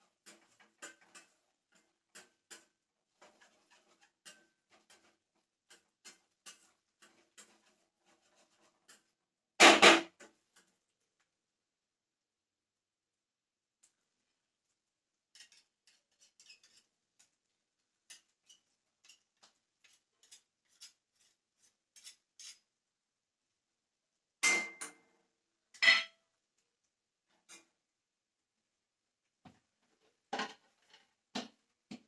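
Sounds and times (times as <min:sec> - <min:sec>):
utensils clicking and tapping: 0:00.2 - 0:07.7.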